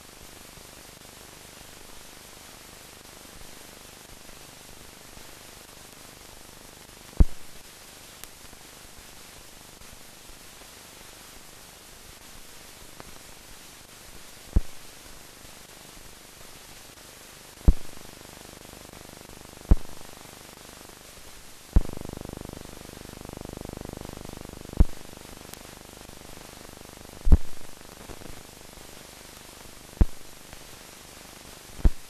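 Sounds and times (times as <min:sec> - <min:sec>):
steady soundtrack hiss: 0:00.0 - 0:32.0
sharp pops: 0:07.2 - 0:07.5, 0:17.7 - 0:18.0, 0:19.7 - 0:20.1, 0:24.8 - 0:25.0, 0:27.2 - 0:27.7.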